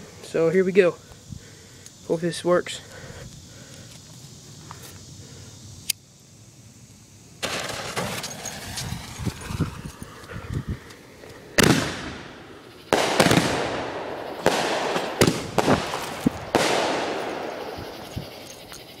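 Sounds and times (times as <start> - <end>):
firework crackles: 6.7 - 19.0
firework mortar bangs: 7.4 - 10.3, 11.4 - 18.4.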